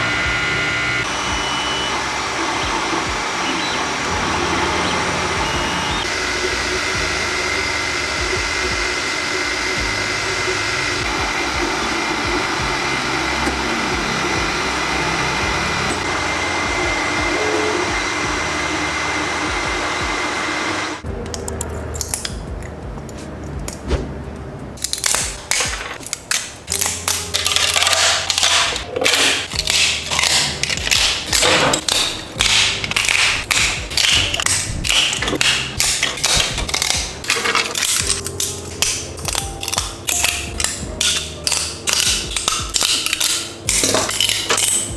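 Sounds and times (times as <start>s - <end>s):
printer fans and motors whining: 0.0s - 21.1s
cutters snipping plastic: 24.8s - 44.9s.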